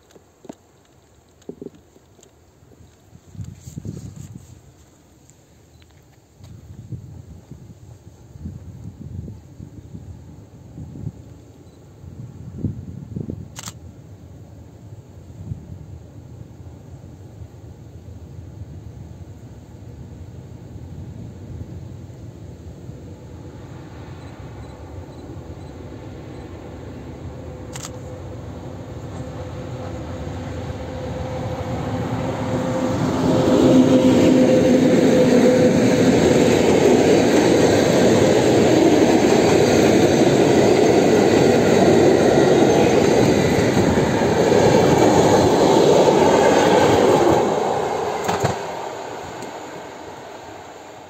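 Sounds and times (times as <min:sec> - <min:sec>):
locomotive humming tone: 0:14.1 - 0:51.0
train wheels rolling on rails: 0:22.8 - 0:51.0.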